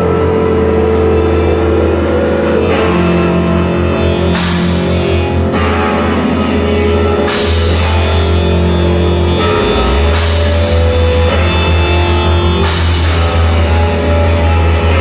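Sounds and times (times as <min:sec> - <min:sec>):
live rock band playing: 0:00.0 - 0:15.0
cymbal crashes: 0:04.0 - 0:05.4, 0:07.2 - 0:08.7, 0:09.6 - 0:15.0.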